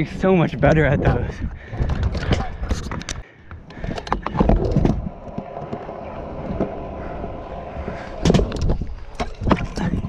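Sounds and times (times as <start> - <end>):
wheels rolling on concrete: 0.6 - 10.0
scooter deck knocks and clatters: 8.2 - 10.0.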